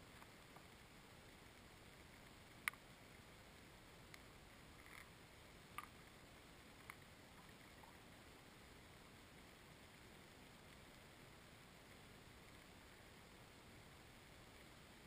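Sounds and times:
small sharp clicks: 2.2 - 2.9, 4.0 - 6.0, 6.8 - 7.9.

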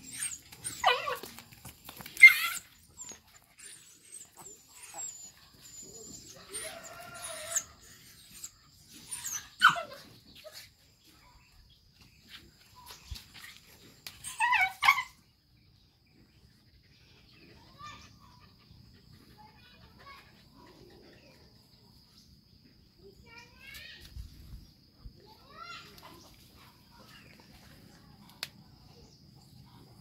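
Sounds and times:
dog yelping and whining: 0.0 - 10.6, 14.0 - 15.2.

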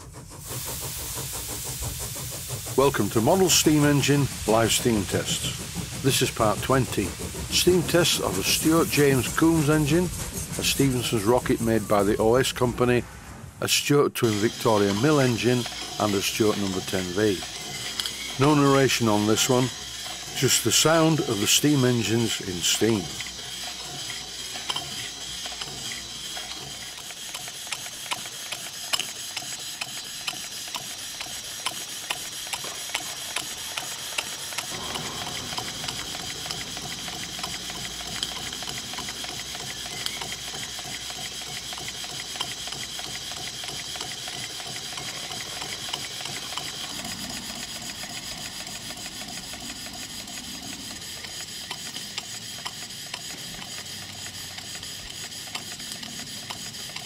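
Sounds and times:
steam engine clatter: 0.0 - 57.0
steam hissing: 0.0 - 57.0
low rumble: 12.2 - 13.7.

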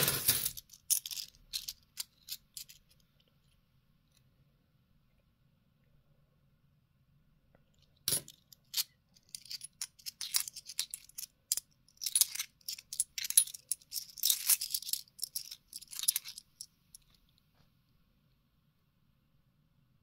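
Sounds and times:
coins clinking in the hand: 0.0 - 2.9, 8.1 - 16.7.

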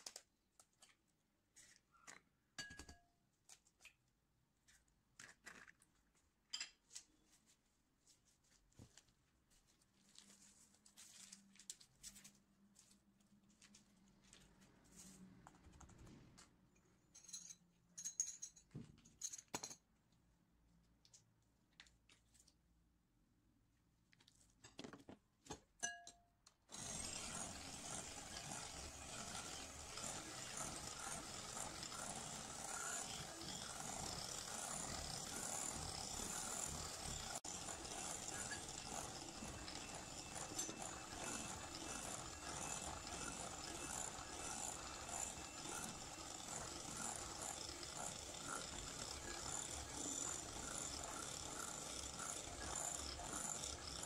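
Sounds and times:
electric hand mixer whirring: 26.7 - 54.0.

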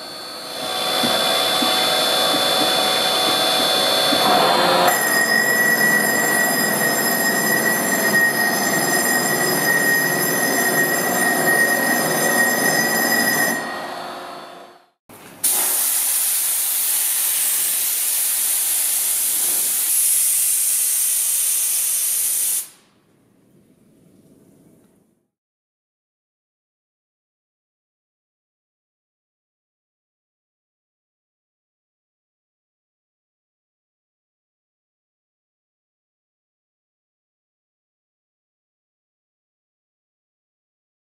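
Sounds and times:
loud steady hiss: 15.4 - 23.0.

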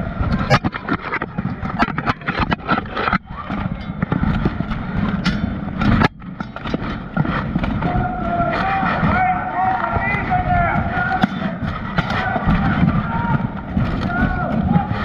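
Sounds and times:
plate armour clanking and scraping: 0.3 - 9.9.

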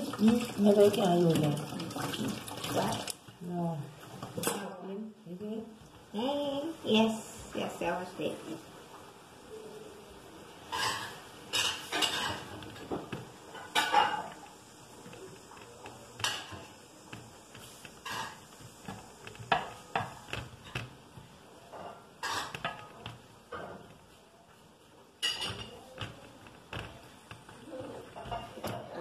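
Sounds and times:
cup clinking against pan and dishes: 25.2 - 25.8.

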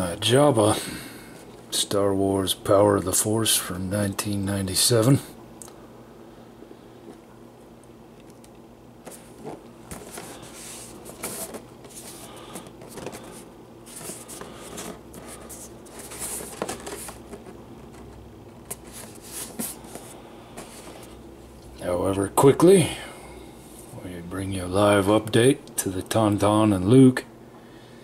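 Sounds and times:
cardboard box being handled: 9.1 - 21.1.

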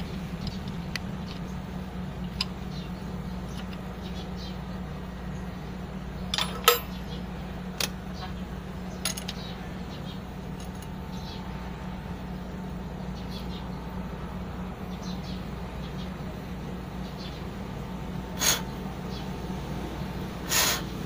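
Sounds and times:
steady low hum: 0.0 - 21.0
wrench clinking on metal fittings: 6.3 - 7.0, 9.0 - 9.5.

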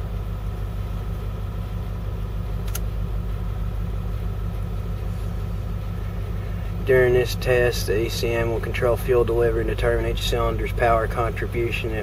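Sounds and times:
diesel engine rumbling: 0.0 - 12.0
sharp click: 2.6 - 2.9.

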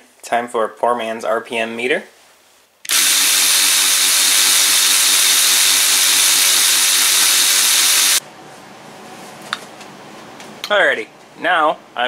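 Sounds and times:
cordless ratchet wrench whining: 2.9 - 8.2.

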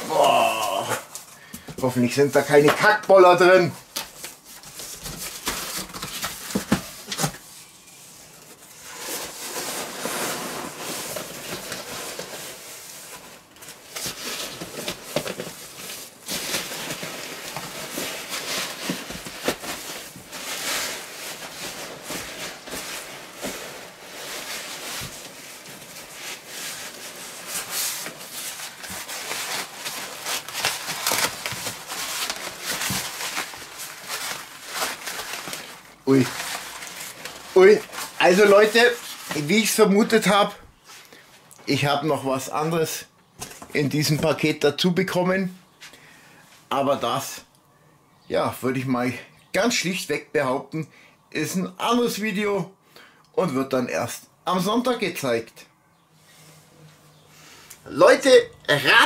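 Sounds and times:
cardboard box rustling and scraping: 8.5 - 39.4.

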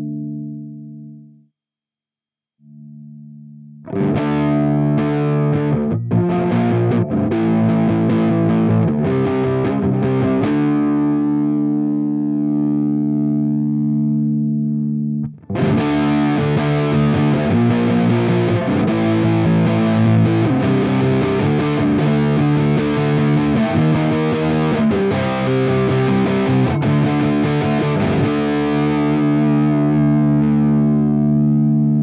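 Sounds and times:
distorted electric guitar riffing: 2.7 - 32.0.

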